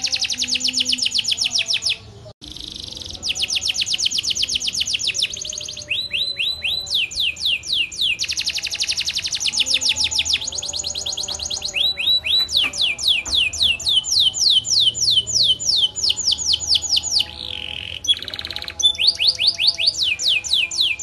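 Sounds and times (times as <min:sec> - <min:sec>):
canary singing: 0:00.0 - 0:21.0.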